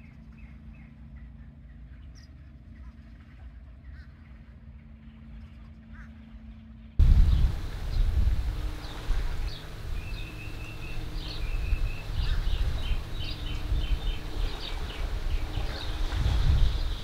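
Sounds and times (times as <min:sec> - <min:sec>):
birds chirping: 0:07.0 - 0:17.0
wind buffeting microphone: 0:07.0 - 0:17.0.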